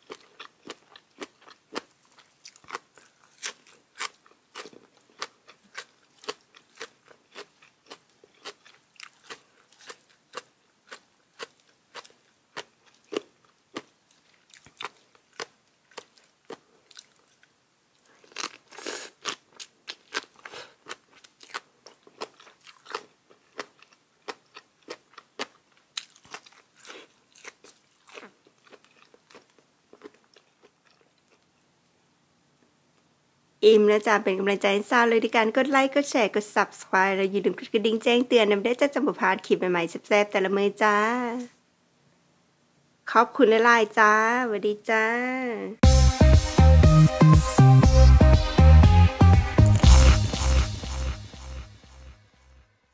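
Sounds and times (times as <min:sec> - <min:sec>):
person chewing crunchy food: 0:00.0 - 0:31.5, 0:49.6 - 0:51.1.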